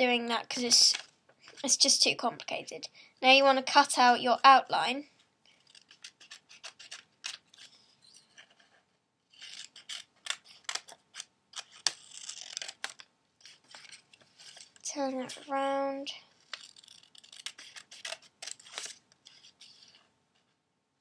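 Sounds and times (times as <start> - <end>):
scissors snipping paper: 5.6 - 7.7, 9.4 - 14.0, 16.5 - 19.8
paper rustling: 16.4 - 20.6.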